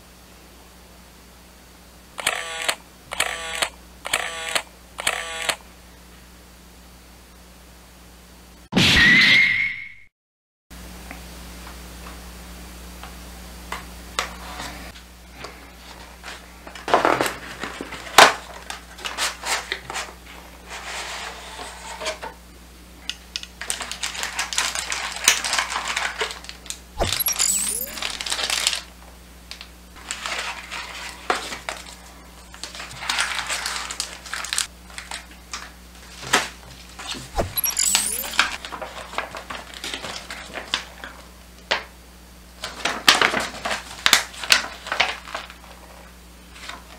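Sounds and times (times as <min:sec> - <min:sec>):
plastic wrapping crinkling: 0:23.6 - 0:26.8, 0:28.0 - 0:28.9, 0:30.0 - 0:36.2
paper rustling: 0:30.0 - 0:35.2, 0:38.2 - 0:40.9, 0:42.6 - 0:46.0.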